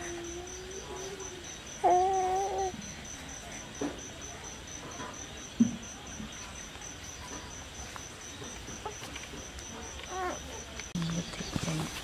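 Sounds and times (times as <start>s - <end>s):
cricket chirping: 0.0s - 12.0s.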